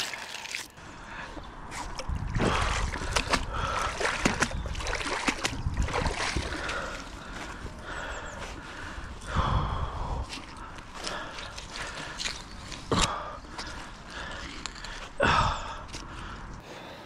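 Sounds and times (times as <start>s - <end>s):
wet mud squelching: 1.4s - 16.4s
water splashing: 1.7s - 7.3s
debris and rope clicking: 10.7s - 15.2s.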